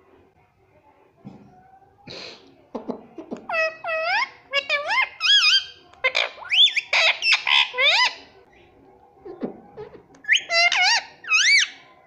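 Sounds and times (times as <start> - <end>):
parrot squawking: 3.5 - 8.2, 9.3 - 11.8.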